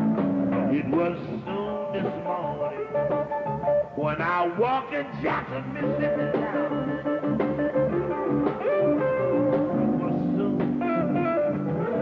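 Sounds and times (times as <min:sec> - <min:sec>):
guitar: 0:00.0 - 0:12.0
amplified harmonica: 0:10.8 - 0:12.0.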